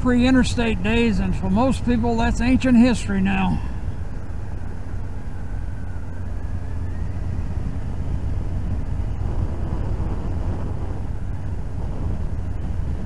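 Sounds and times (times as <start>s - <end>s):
faint rising whine: 0.0s - 13.0s
wind rumble on microphone: 0.0s - 13.0s
motorcycle engine running: 3.7s - 13.0s.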